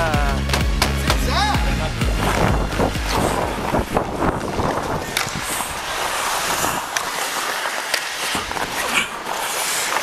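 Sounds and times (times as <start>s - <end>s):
skate blades scraping ice: 2.0s - 10.0s
wind on microphone: 2.1s - 6.9s.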